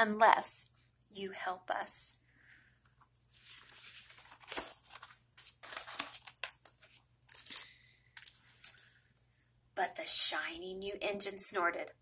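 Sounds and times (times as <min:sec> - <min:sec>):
book pages rustling: 0:03.0 - 0:07.6.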